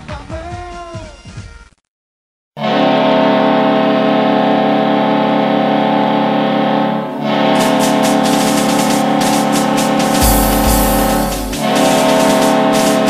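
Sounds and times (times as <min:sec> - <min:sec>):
goal horn blaring: 0:02.6 - 0:13.0
quick rhythmic hits: 0:07.4 - 0:13.0.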